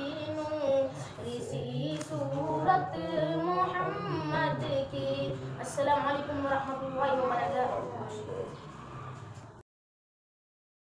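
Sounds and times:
man's low singing voice: 0.0s - 6.1s
unaccompanied voices singing: 0.0s - 9.4s.

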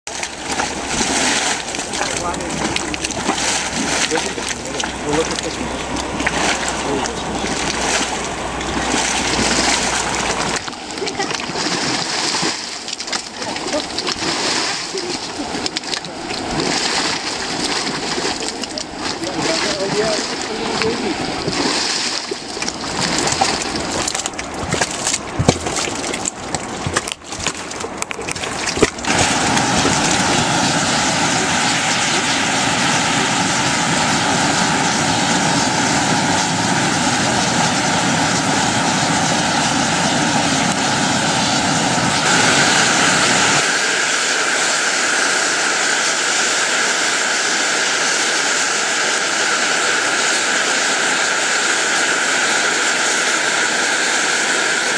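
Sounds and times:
boiling mud plopping and gurgling: 0.1s - 41.3s.

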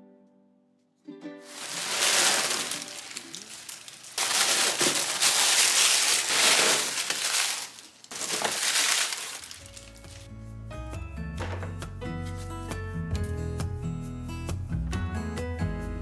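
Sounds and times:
paper packing rustling and crinkling: 1.5s - 10.3s
soft music: 9.4s - 16.0s.

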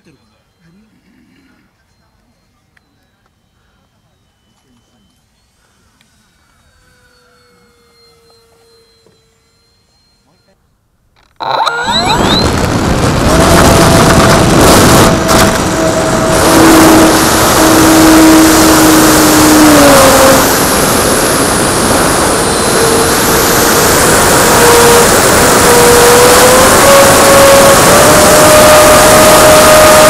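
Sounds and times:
electric motor and propeller whine: 2.8s - 10.6s, 11.2s - 30.0s
wind rush on microphone: 11.8s - 30.0s.

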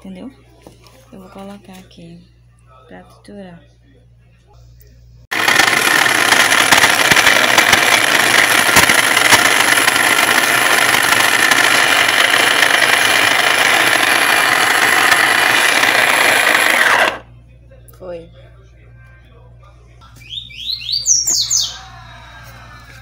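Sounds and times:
food processor motor whirring: 5.3s - 17.3s.

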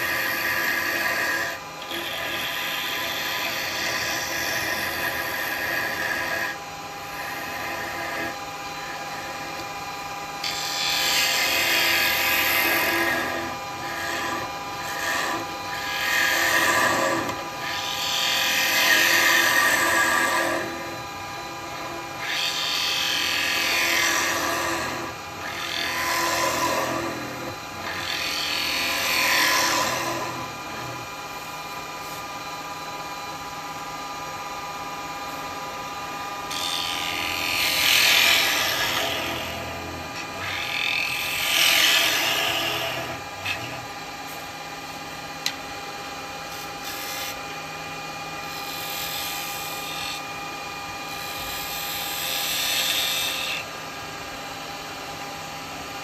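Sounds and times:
turning tool cutting wood hiss: 0.0s - 9.7s, 10.4s - 21.0s, 21.8s - 31.1s, 36.5s - 44.5s, 46.5s - 47.4s, 48.5s - 50.3s, 51.1s - 53.8s
wood lathe humming: 0.0s - 54.3s.

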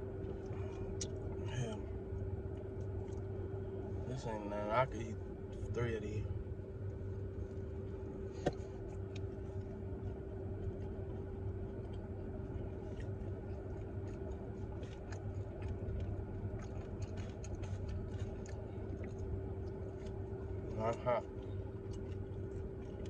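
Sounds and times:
car running inside cabin: 0.0s - 23.0s
clicks from chewing food: 0.2s - 3.4s, 8.4s - 23.0s.

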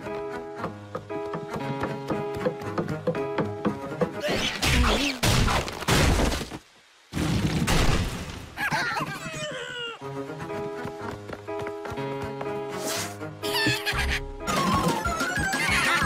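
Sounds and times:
background music: 0.0s - 5.0s, 10.0s - 16.0s
cartoon crashing and smashing: 7.2s - 8.4s.

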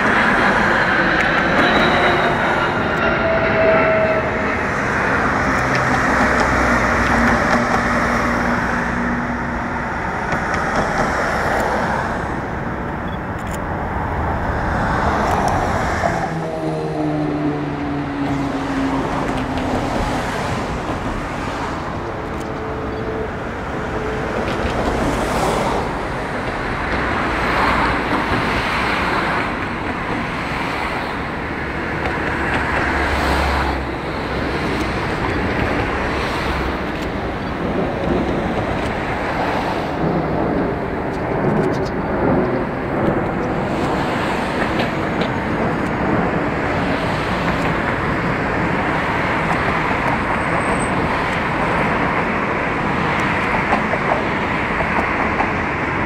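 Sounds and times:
jet aircraft roaring overhead: 0.0s - 56.0s
road traffic: 0.0s - 56.0s.

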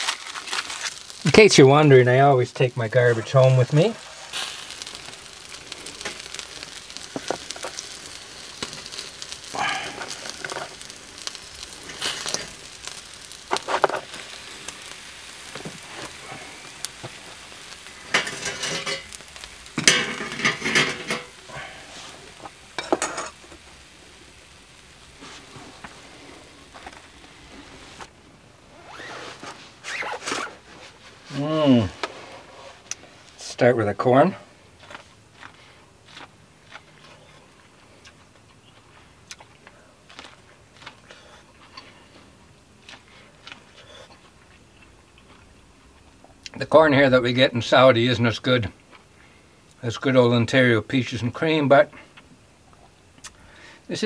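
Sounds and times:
chicken sizzling on a grill: 0.0s - 54.0s
scrapes and knocks on grill: 13.5s - 14.2s, 18.1s - 19.2s, 19.8s - 21.4s, 22.8s - 23.4s.

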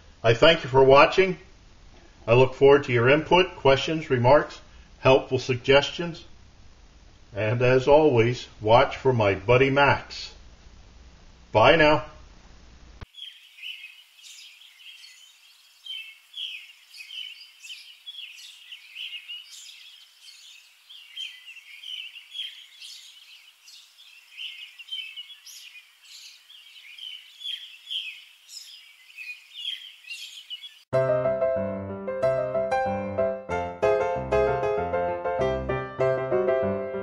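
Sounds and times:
small birds chirping: 13.0s - 30.9s
piano music: 30.9s - 37.0s.

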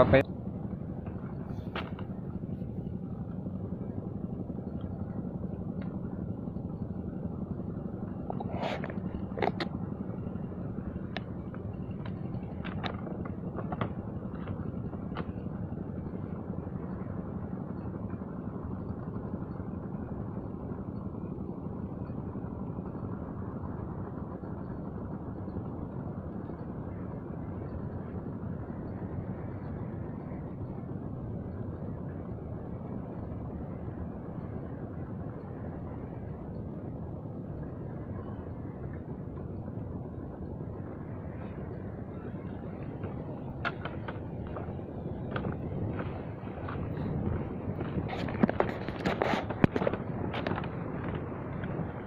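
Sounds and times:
motor humming: 0.0s - 52.0s
faint clicks and taps: 43.0s - 51.8s.

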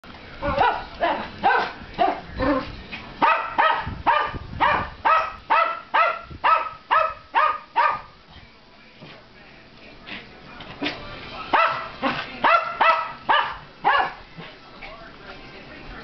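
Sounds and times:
dog barking high: 0.6s - 2.2s, 3.2s - 8.1s, 11.5s - 14.2s.

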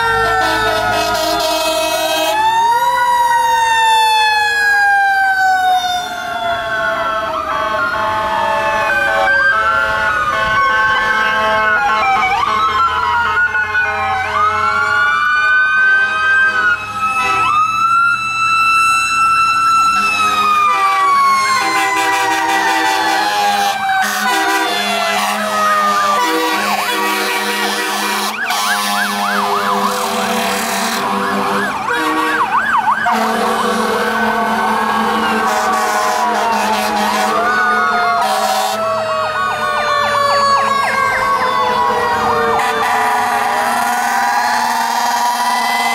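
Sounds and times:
rapid yelping siren: 0.0s - 45.9s
wailing sirens: 0.0s - 45.9s.

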